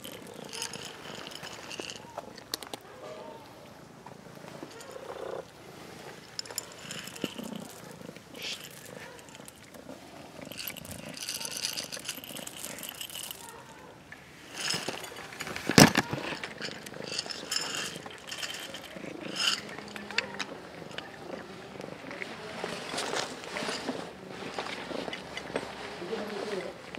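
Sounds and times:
kibble rattling in plastic bottle: 0.0 - 2.8, 4.5 - 5.4, 6.0 - 13.9, 14.5 - 26.8
kibble scattering on paving stones: 0.0 - 2.9, 6.2 - 13.9, 14.5 - 25.8
cats crunching kibble: 0.0 - 3.0, 3.7 - 26.9
sharp clatter: 14.5 - 21.2.

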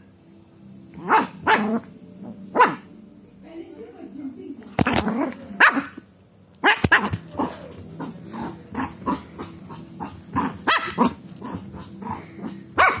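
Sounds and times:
small dog barking: 1.0 - 1.8, 2.5 - 2.9, 5.6 - 6.0, 6.6 - 8.1, 10.4 - 11.6, 12.8 - 13.0
dog growling: 1.0 - 2.8, 4.8 - 5.9, 6.8 - 13.0.

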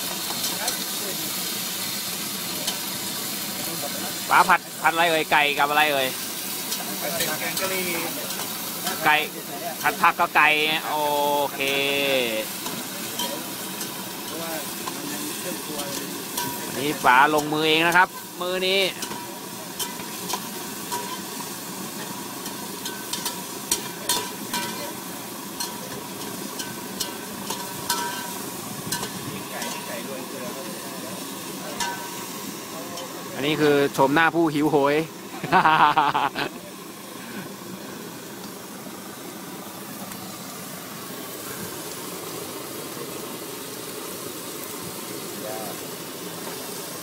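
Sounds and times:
gas stove burner hissing: 0.0 - 47.0.

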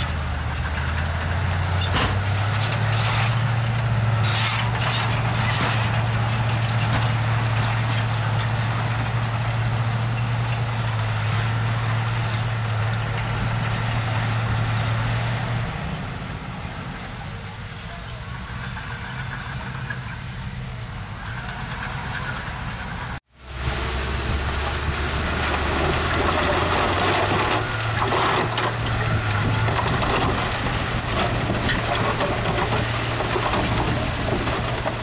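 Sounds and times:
diesel engine running: 0.0 - 35.0
knocks and rattles: 24.7 - 35.0.

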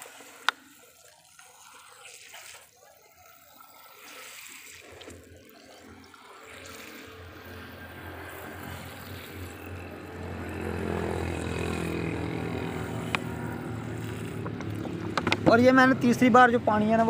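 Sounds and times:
water pouring in a thin stream: 0.0 - 15.1.

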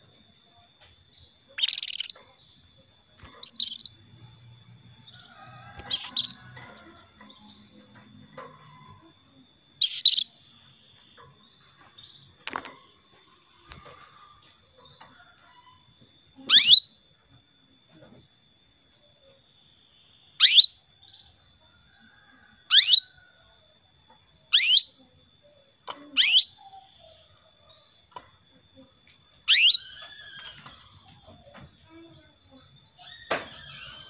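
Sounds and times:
canary chirping: 1.0 - 15.8, 16.4 - 17.0, 20.3 - 21.4, 22.7 - 23.2, 24.4 - 25.1, 25.8 - 28.3, 29.4 - 31.2, 32.6 - 34.0.

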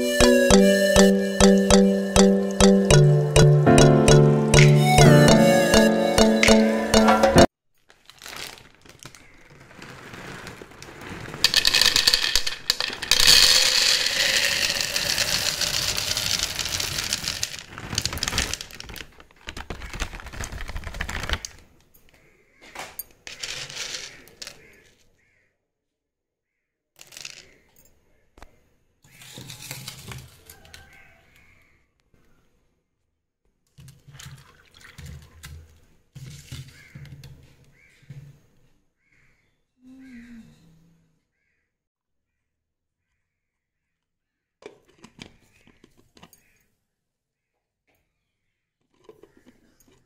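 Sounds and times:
plastic bag crinkling: 7.8 - 21.7
chickpeas rattling in plastic jar: 7.9 - 21.6, 23.2 - 24.6.

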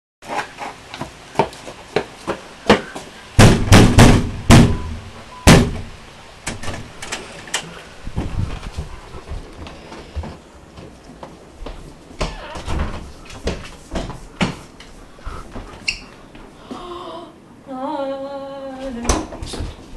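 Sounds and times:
fist pounding on glass door: 3.4 - 5.9.

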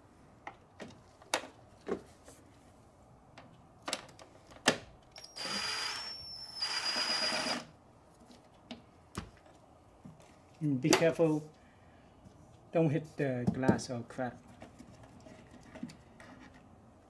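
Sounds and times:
cordless power tool whining: 5.2 - 7.7.

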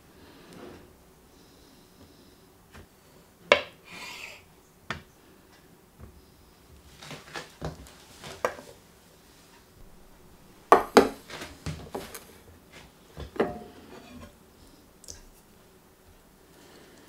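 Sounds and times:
metal colander knocking on wood: 13.4 - 13.7.

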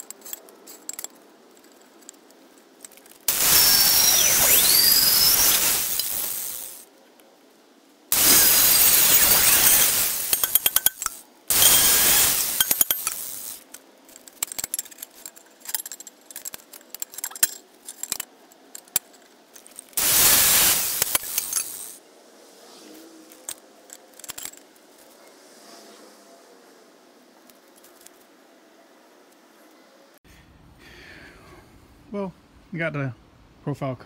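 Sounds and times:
clinks of steel being handled: 0.0 - 3.1, 9.1 - 13.4, 14.1 - 20.0
angle grinder cutting steel: 3.3 - 6.8, 8.1 - 13.7, 20.0 - 22.0.

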